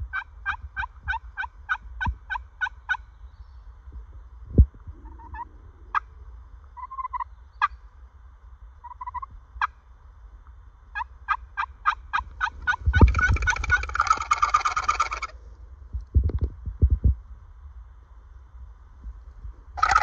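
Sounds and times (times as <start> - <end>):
turkey gobble: 0.0 - 3.0, 5.0 - 6.1, 6.8 - 7.8, 8.8 - 9.8, 10.9 - 15.4, 19.8 - 20.0
turkey clucks and cutts: 0.0 - 3.1, 4.9 - 6.1, 6.8 - 7.8, 8.8 - 9.8, 10.9 - 15.4, 19.8 - 20.0
turkey yelps: 0.1 - 3.0, 5.0 - 6.1, 6.8 - 7.8, 8.8 - 9.8, 10.9 - 15.3, 19.8 - 20.0.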